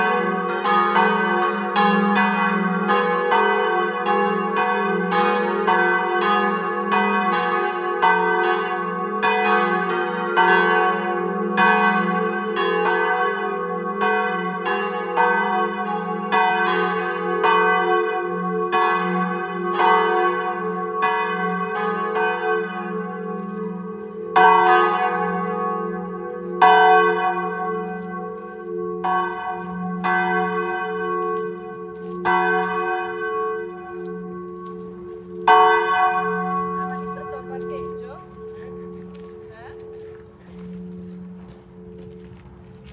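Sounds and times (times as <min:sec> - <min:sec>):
church bells ringing: 0:00.0 - 0:42.9.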